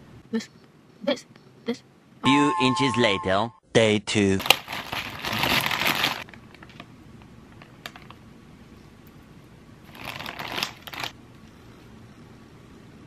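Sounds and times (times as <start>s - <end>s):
plastic mailer bag crinkling: 4.4s - 6.8s, 9.9s - 11.2s.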